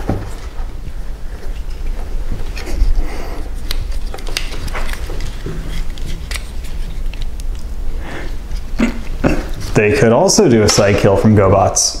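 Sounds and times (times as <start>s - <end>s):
paper rustling: 1.3s - 7.7s
plastic toy clicks and rubbing: 3.6s - 7.6s.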